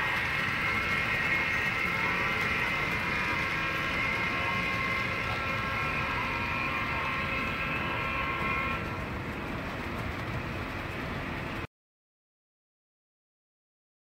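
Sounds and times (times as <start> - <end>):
model train whine and rumble: 0.0 - 11.7.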